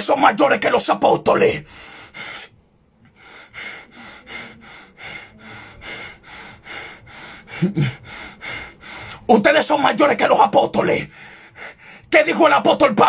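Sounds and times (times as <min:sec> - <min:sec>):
man breathing heavily through nose: 0:01.6 - 0:09.3, 0:11.0 - 0:12.1.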